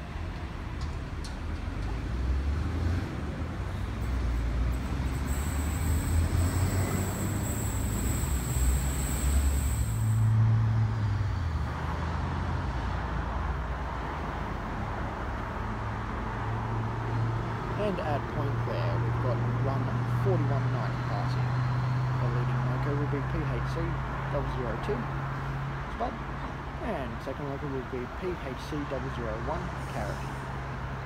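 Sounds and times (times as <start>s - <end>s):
distant train hum: 4.0s - 10.3s
train high whine: 4.7s - 10.4s.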